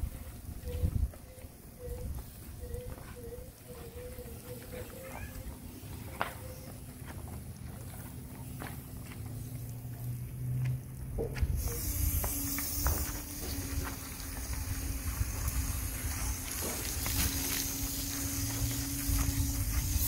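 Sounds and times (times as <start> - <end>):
brush scrubbing car: 11.6 - 20.0.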